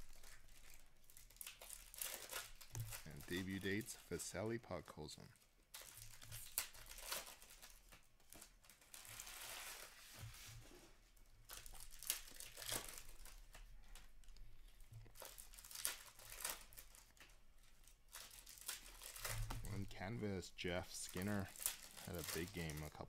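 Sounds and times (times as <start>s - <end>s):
card pack wrappers crinkling: 0.0s - 10.2s, 11.4s - 23.0s
cards rustling and flicking: 5.8s - 10.7s, 11.5s - 23.0s.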